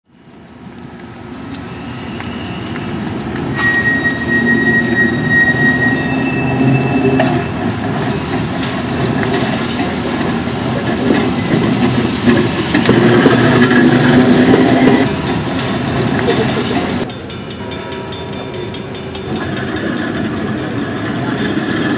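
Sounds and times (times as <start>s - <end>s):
streetcar wheel squeal: 1.4s - 17.7s
steel wheels clattering on rails: 1.5s - 21.9s.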